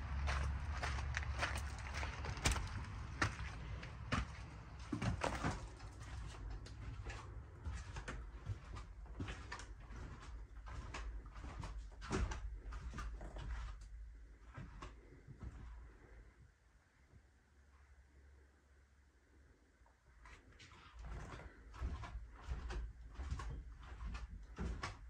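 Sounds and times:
footsteps on floor: 0.2s - 13.8s.

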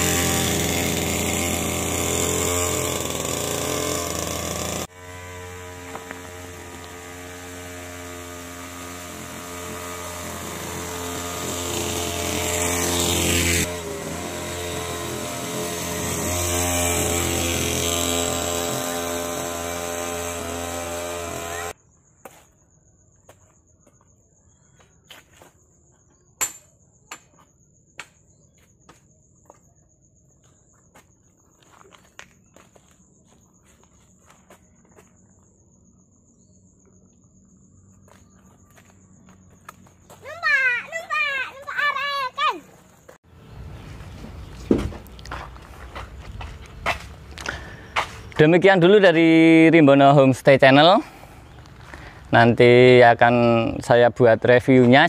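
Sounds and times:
mini bike engine passing: 0.0s - 21.8s
high insect trill: 0.0s - 55.0s.

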